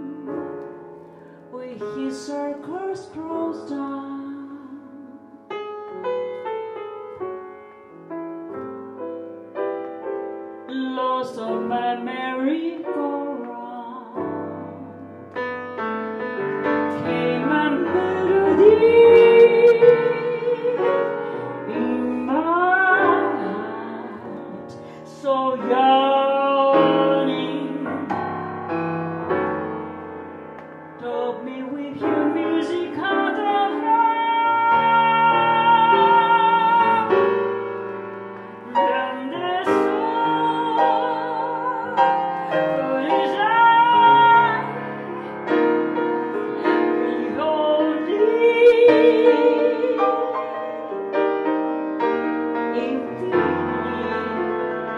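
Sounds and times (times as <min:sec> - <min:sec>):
grand piano chords: 0:00.0 - 0:54.9
woman singing jazz ballad: 0:01.5 - 0:05.5, 0:10.6 - 0:15.2, 0:16.9 - 0:28.8, 0:31.0 - 0:37.8, 0:38.6 - 0:51.5, 0:52.5 - 0:54.9.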